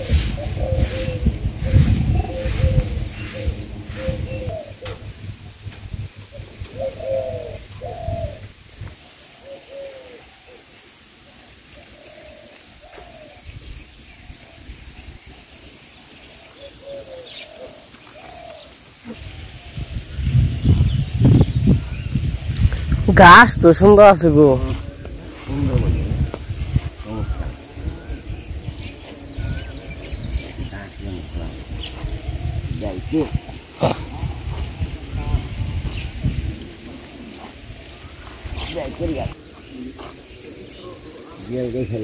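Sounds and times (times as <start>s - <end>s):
wind rumble on microphone: 0.0s - 9.0s, 13.0s - 15.5s, 19.1s - 41.1s
doves cooing: 0.0s - 13.6s, 16.0s - 22.7s, 23.7s - 42.0s.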